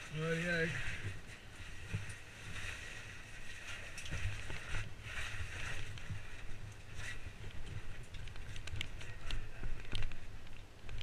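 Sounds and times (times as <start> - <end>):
oversuit and gear rustling: 0.0 - 11.0.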